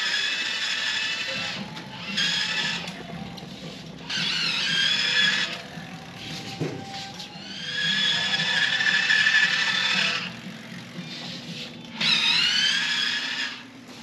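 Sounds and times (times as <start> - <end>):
electric bike motor whining: 0.0 - 14.0.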